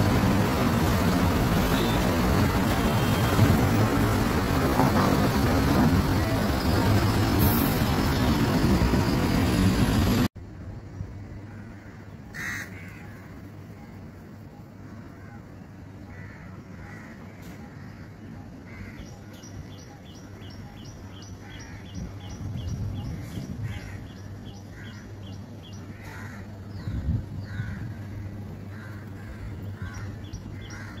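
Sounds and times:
truck engine rumble: 0.0 - 10.6
low traffic hum: 0.0 - 31.0
birds calling harshly: 14.8 - 31.0.

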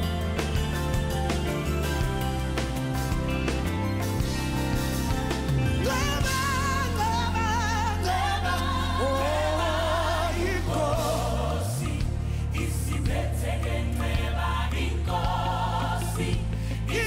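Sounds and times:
band with low bass line: 0.0 - 17.0
woman singing with vibrato: 5.8 - 9.4
backing singers: 5.8 - 17.0.

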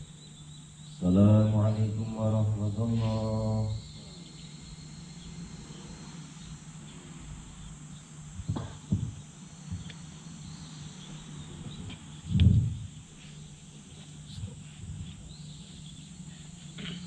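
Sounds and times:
faint insect chirping: 0.0 - 17.0
low steady hum: 0.0 - 17.0
soft thumps: 8.4 - 9.9.

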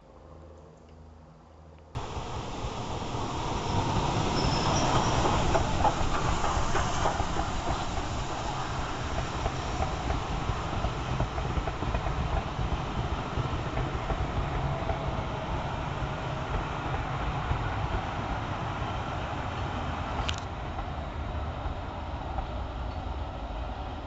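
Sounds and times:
wheels clicking over rail joints: 2.0 - 18.1
train rumbling over track: 2.0 - 24.0.

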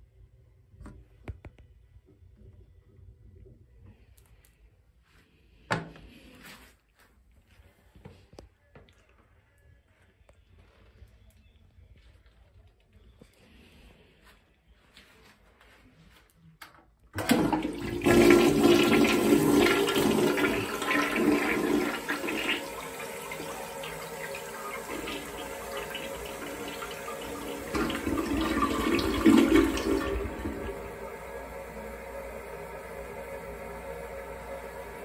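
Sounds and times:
water draining and refilling: 17.2 - 31.0
toilet flushing: 17.2 - 35.0.

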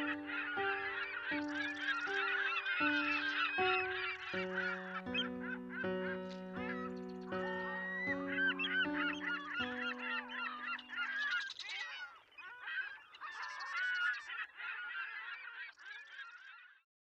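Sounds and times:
held music chord: 0.0 - 11.2
geese honking: 0.0 - 16.4.

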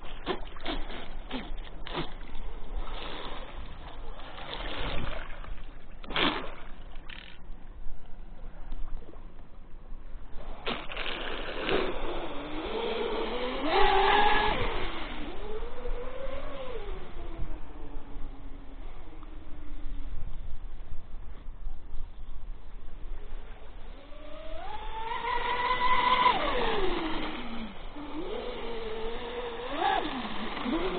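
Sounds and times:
water swooshes: 0.0 - 7.4, 10.0 - 20.2, 23.2 - 30.9
rush of water and air: 0.0 - 30.9
electric motor whine: 11.7 - 18.1, 23.9 - 30.9.

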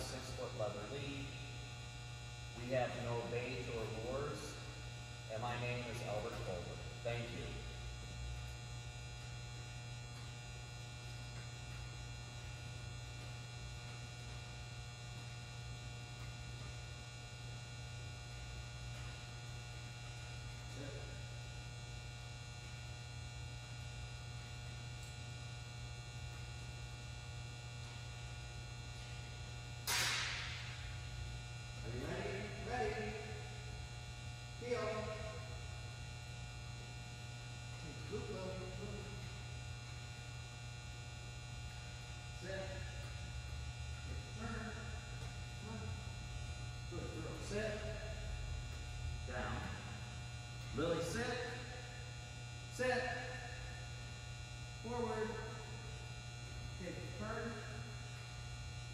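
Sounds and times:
low electrical hum: 0.0 - 58.9
sharp crack: 29.8 - 30.8.

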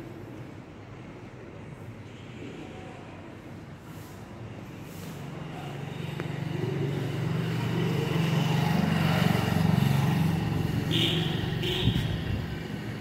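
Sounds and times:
motorcycle passing by: 5.3 - 13.0.

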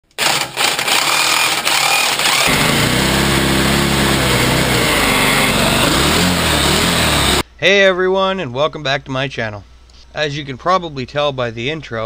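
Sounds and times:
small engine running: 0.2 - 7.4
supercharger blowing: 2.2 - 7.4.

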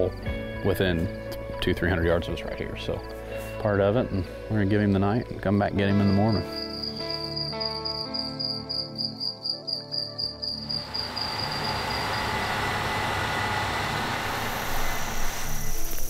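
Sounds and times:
soft music notes: 0.0 - 10.7
crickets chirping: 1.9 - 13.6
combine harvester running: 10.8 - 16.0.

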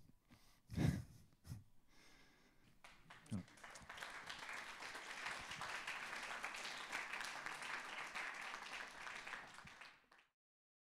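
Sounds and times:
audience applauding: 2.8 - 10.3.

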